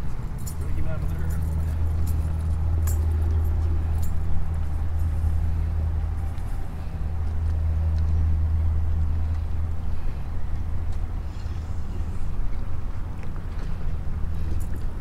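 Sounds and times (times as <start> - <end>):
engine running with low hum: 0.0 - 15.0
light clicks and rattles: 0.4 - 6.5.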